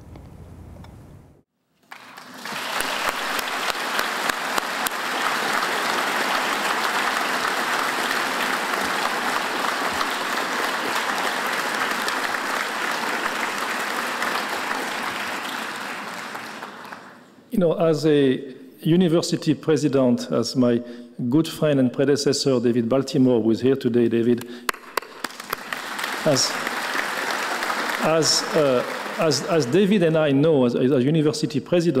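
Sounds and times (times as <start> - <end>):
audience applauding: 1.8 - 17.3, 24.7 - 30.4.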